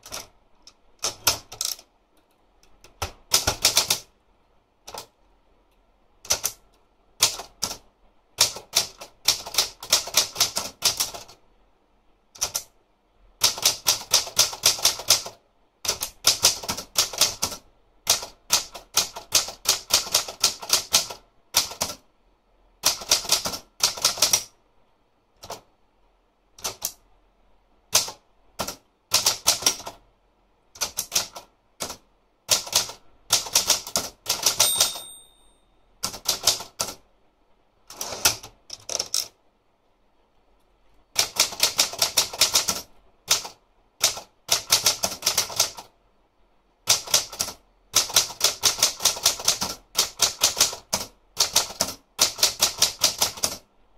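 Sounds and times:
typewriter keystrokes clacking: 0:00.0 - 0:00.3, 0:02.7 - 0:04.1, 0:06.2 - 0:06.6, 0:07.2 - 0:07.8, 0:08.4 - 0:11.4, 0:12.4 - 0:12.7, 0:13.4 - 0:22.0, 0:22.8 - 0:24.5, 0:26.6 - 0:27.0, 0:27.9 - 0:30.0, 0:30.8 - 0:35.2, 0:36.0 - 0:37.0, 0:37.9 - 0:39.3, 0:41.2 - 0:45.9, 0:46.9 - 0:53.6.

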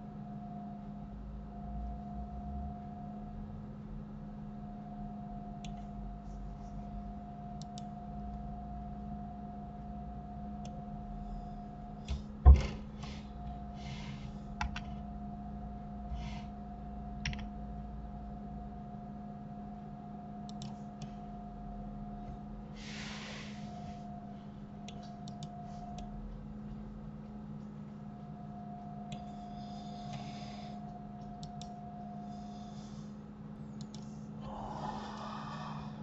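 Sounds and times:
steady electrical hum: 0:00.0 - 0:36.0
computer mouse clicks: 0:20.5 - 0:21.1, 0:24.8 - 0:26.1, 0:31.2 - 0:31.8, 0:33.7 - 0:34.1.

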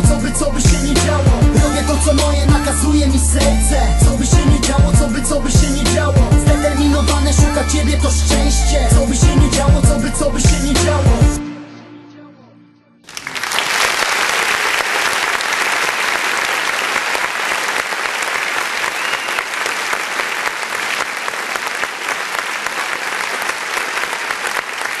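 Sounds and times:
audience applause: 0:13.1 - 0:25.0.

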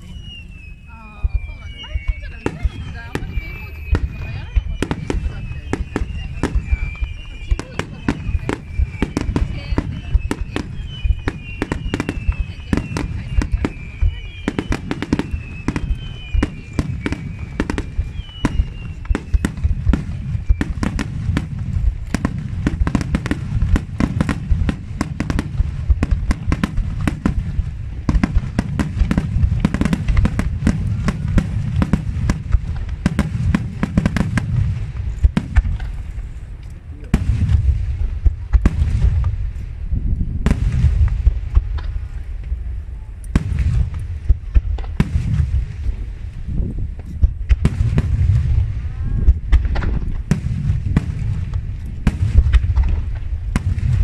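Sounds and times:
firework cracks and crackle: 0:00.0 - 0:54.0
firework shells booming: 0:00.0 - 0:54.0.

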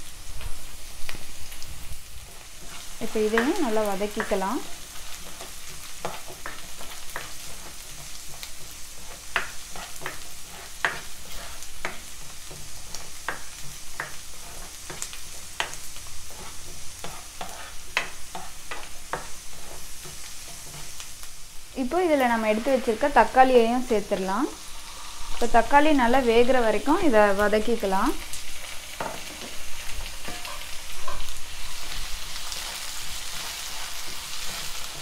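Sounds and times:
vegetables sizzling in oil: 0:00.0 - 0:35.0
spatula scraping a pan: 0:00.4 - 0:21.3, 0:22.2 - 0:26.5, 0:28.5 - 0:35.0.

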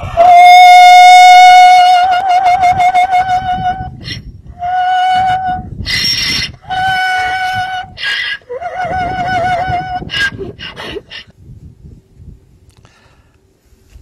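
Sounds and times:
donkey braying: 0:00.0 - 0:11.3.

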